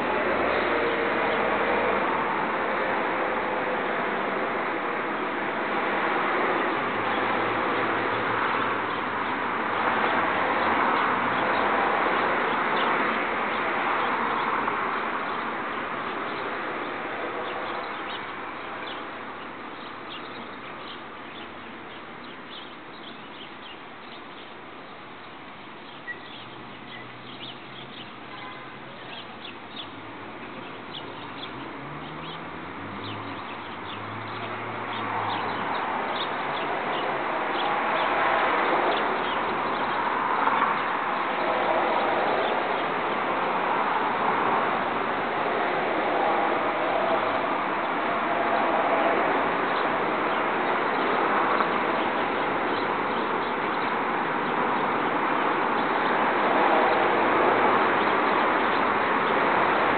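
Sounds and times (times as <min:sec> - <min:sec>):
small birds chirping: 0:06.8 - 0:41.4, 0:49.7 - 0:56.2.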